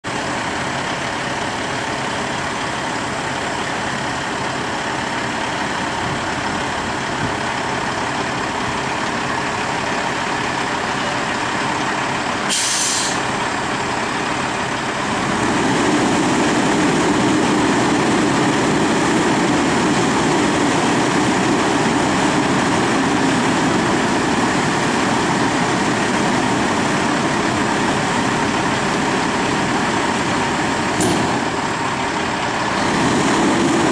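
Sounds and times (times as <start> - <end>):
truck diesel engine running: 0.0 - 33.9
air hiss: 12.5 - 13.3.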